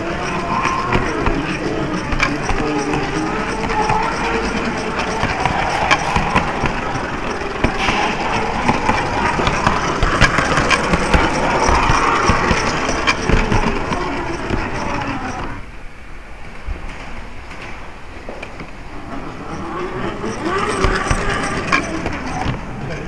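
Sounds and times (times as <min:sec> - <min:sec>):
track clicks: 0:00.0 - 0:15.7, 0:18.4 - 0:23.0
model tram running on track: 0:00.0 - 0:23.0.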